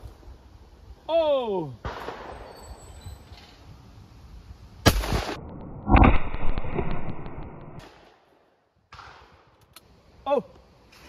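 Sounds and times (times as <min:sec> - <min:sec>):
shotgun shots with echo: 0:04.9 - 0:07.2.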